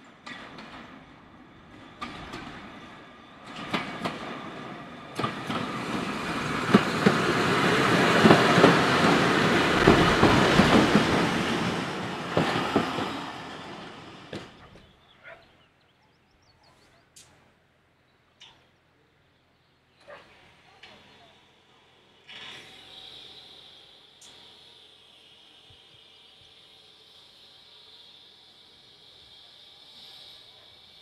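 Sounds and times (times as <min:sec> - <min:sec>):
train passing by: 0:00.0 - 0:15.1, 0:20.3 - 0:31.0
wheels clicking over rail joints: 0:03.4 - 0:14.9.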